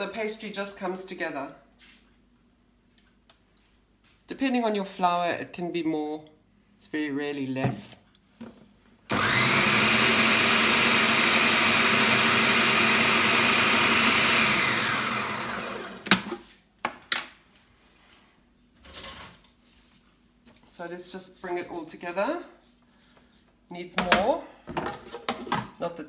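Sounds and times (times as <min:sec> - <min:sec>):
food processor whirring: 0:09.1 - 0:16.4.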